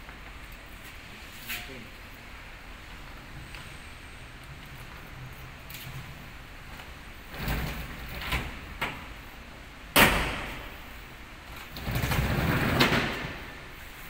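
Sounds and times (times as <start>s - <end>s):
roller lid rattling: 11.6s - 13.5s.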